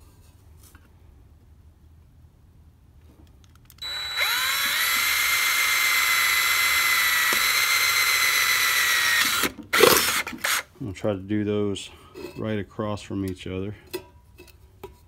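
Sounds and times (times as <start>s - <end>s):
cordless drill whining: 3.8s - 10.7s
drill boring through tin can: 3.8s - 10.7s.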